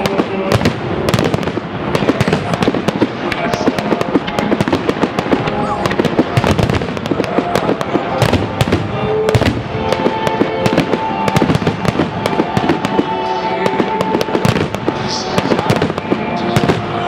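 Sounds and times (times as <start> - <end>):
fireworks bangs and crackles: 0.0 - 17.0
music: 3.3 - 17.0.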